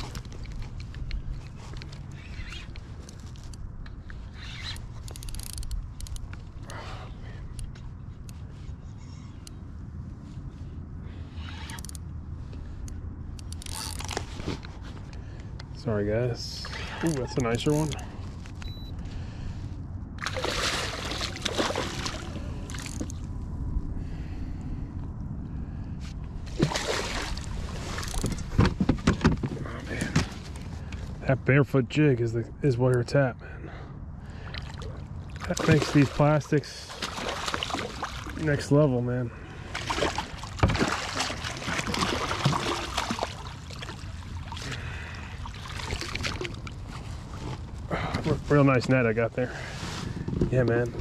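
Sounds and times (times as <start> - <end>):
water splashing: 20.2 - 23.1, 26.5 - 28.1, 34.4 - 38.7, 39.6 - 47.0
wind rumble on microphone: 45.9 - 51.0.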